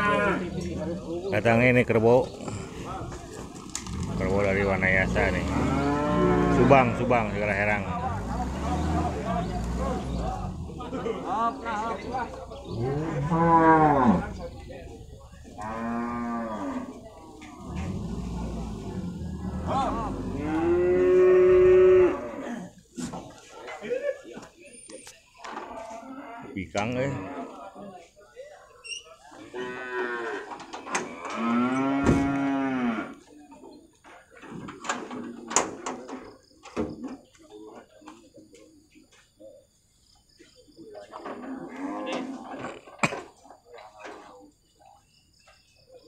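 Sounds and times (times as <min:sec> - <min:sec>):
cow mooing: 0:00.0 - 0:00.6, 0:03.9 - 0:10.4, 0:12.7 - 0:14.4, 0:15.6 - 0:17.0, 0:17.6 - 0:22.6
water buffalo lowing: 0:03.8 - 0:11.6, 0:17.5 - 0:22.8.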